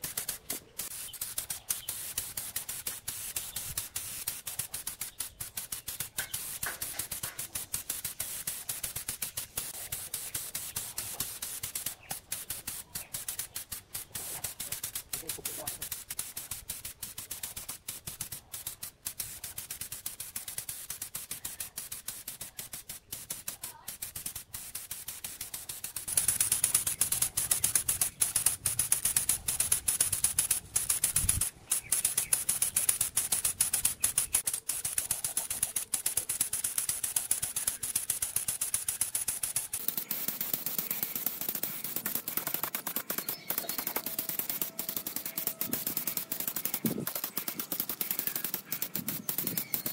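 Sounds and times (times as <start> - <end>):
crackle of fine ticks: 0.0 - 49.9
paint spray gun hissing: 0.0 - 49.9.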